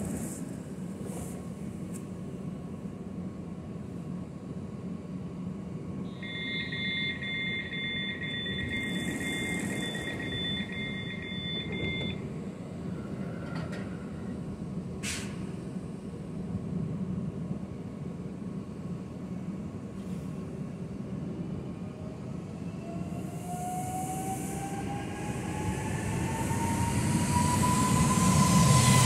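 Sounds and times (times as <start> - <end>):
train humming: 0.0 - 5.9, 20.6 - 29.0
train doors shutting: 15.0 - 15.6.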